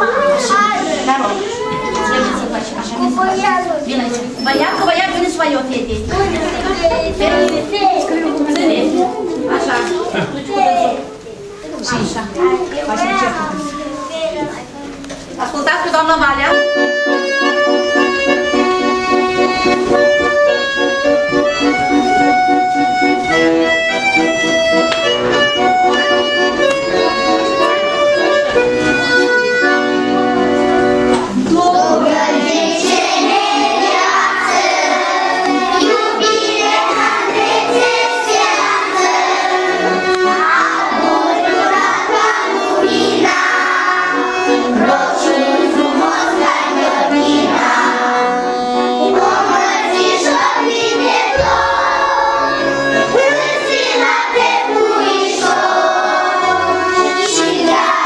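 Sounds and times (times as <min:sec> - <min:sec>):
young children singing: 0:00.0 - 0:03.4, 0:05.9 - 0:11.2, 0:25.3 - 0:58.0
backing music: 0:04.3 - 0:09.7, 0:15.9 - 0:58.0.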